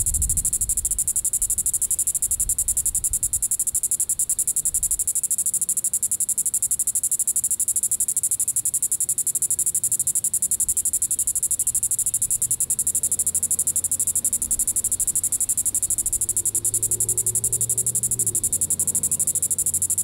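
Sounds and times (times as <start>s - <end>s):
cicada buzzing: 0.0s - 20.0s.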